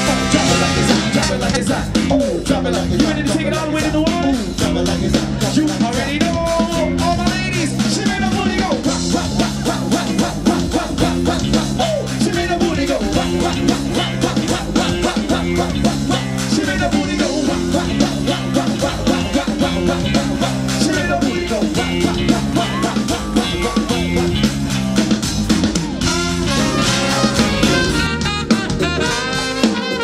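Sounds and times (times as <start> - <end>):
trumpet: 0.0 - 2.0, 26.0 - 30.0
person singing into microphone: 0.0 - 24.5
live funk band music: 0.0 - 30.0.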